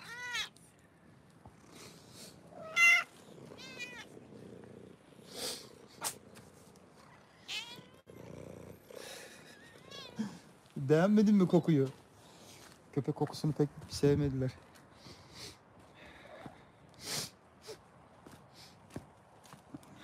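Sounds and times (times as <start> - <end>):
cats meowing: 0.0 - 0.7, 1.9 - 4.4, 7.0 - 8.2, 9.1 - 10.7
cat purring: 1.0 - 9.6.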